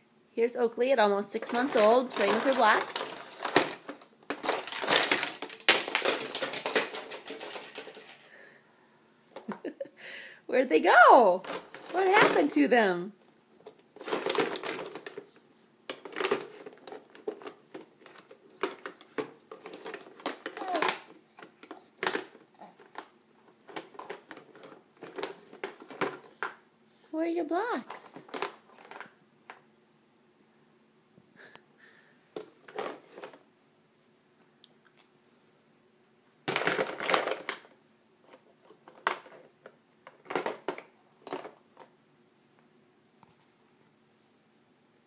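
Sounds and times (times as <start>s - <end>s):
plastic toy blocks clattering: 1.4s - 8.5s, 14.0s - 15.3s, 15.9s - 26.6s, 27.8s - 29.2s, 36.5s - 37.7s, 38.3s - 41.9s.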